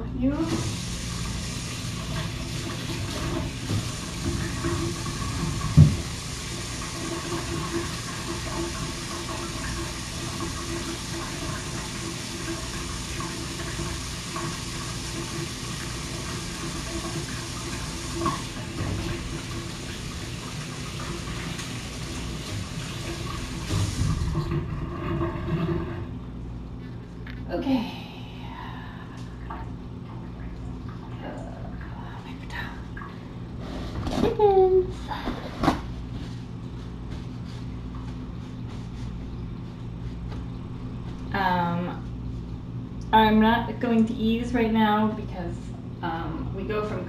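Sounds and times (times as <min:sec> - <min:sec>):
water running from tap: 0:00.2 - 0:26.4.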